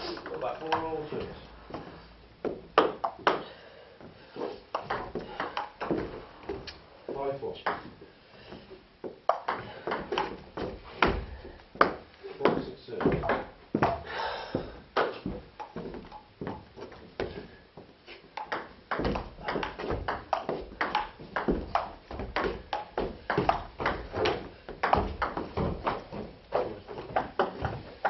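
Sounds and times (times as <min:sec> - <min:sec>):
table tennis ball hits: 0:04.7 - 0:06.1, 0:09.2 - 0:10.4, 0:13.0 - 0:14.0, 0:18.4 - 0:27.7.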